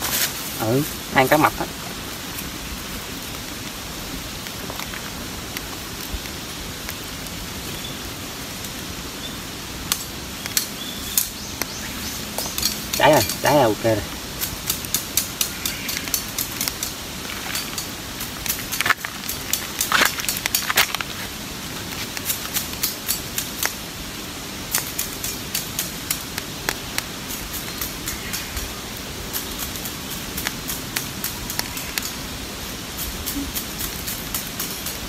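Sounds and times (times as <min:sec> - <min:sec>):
campfire crackling and popping: 0:00.0 - 0:35.0.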